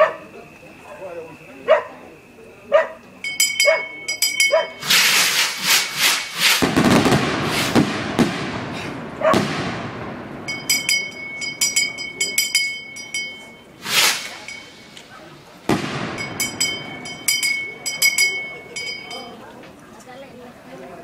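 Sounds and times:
bell ringing rapidly: 3.2 - 4.9, 10.5 - 15.0, 16.2 - 19.4
fireworks banging: 3.2 - 19.4.

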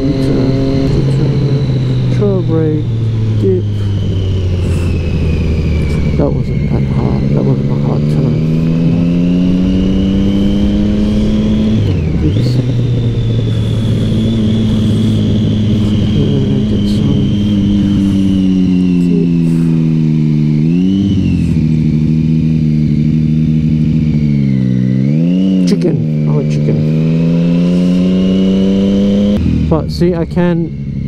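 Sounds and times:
wind rush on microphone: 0.0 - 22.2
motorcycle engine running: 0.0 - 31.0.

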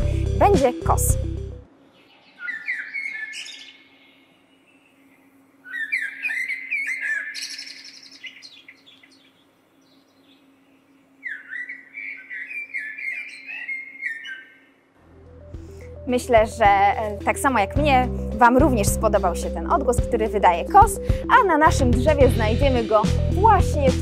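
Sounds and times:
blackbird song: 1.9 - 14.8
faint steady hum: 7.7 - 16.6.

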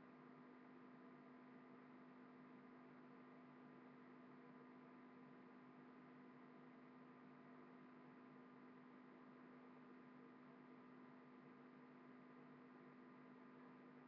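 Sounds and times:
faint steady hum and hiss: 0.0 - 14.0.

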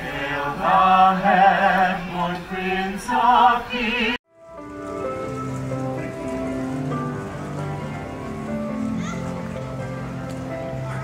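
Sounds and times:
carolers singing in harmony: 0.0 - 4.2
music with long held notes: 0.1 - 11.0.

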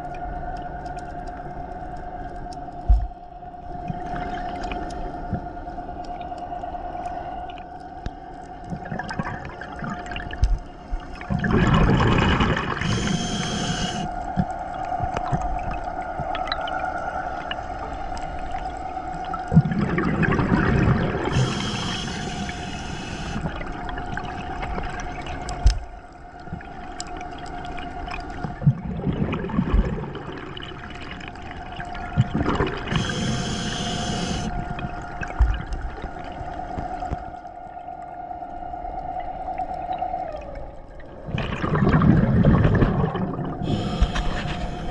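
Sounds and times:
faint steady hum: 0.0 - 44.9
bubbling exhalations: 8.7 - 10.4, 11.2 - 14.1, 19.3 - 25.0, 28.5 - 31.1, 32.0 - 35.4, 41.2 - 44.9
regulator hissing inhale: 12.8 - 14.2, 21.3 - 23.6, 32.9 - 34.6, 43.6 - 44.9.

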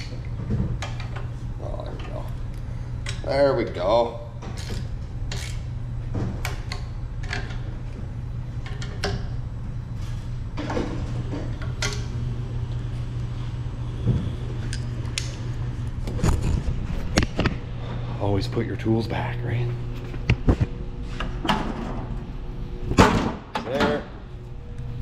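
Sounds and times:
steady low hum: 0.0 - 25.0.

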